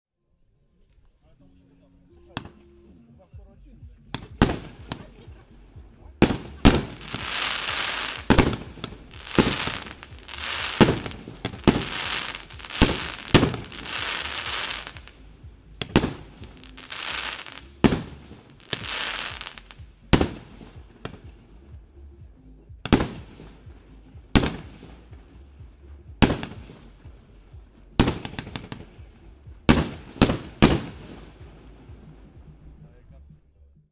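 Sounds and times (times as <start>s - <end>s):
firework bangs: 4.2s - 5.5s, 6.2s - 15.2s, 15.8s - 21.4s, 22.8s - 23.7s, 24.4s - 25.3s, 26.2s - 26.9s, 28.0s - 32.5s
firework hiss: 6.2s - 21.3s.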